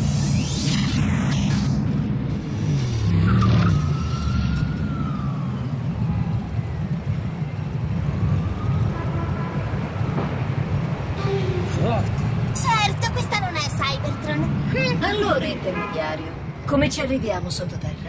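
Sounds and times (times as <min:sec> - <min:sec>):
siren rising and falling: 0:00.0 - 0:11.8
city traffic rumbling: 0:00.0 - 0:18.0.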